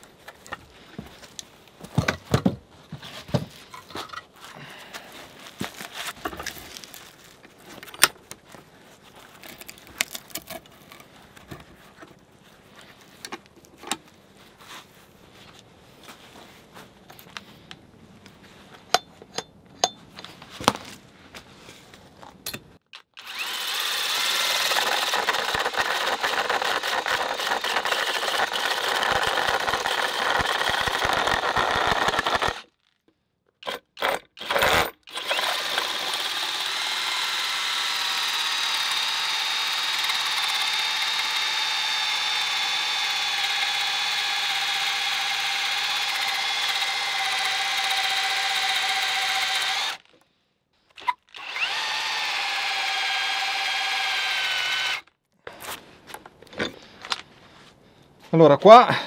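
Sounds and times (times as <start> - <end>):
cordless drill cutting wood: 23.0 - 32.7, 33.6 - 50.1, 50.9 - 55.1.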